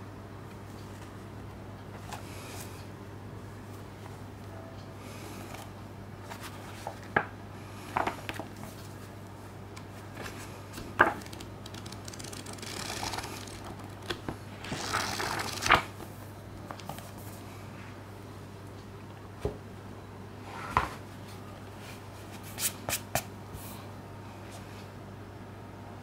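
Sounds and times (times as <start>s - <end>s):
steady low hum: 0.0s - 26.0s
paper pages rustling: 6.2s - 7.3s, 9.8s - 16.1s.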